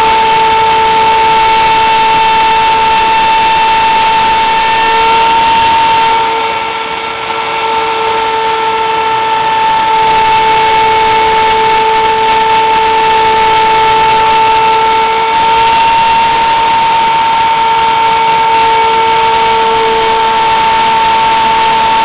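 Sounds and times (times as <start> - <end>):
milling machine cutting wood: 0.0 - 22.0.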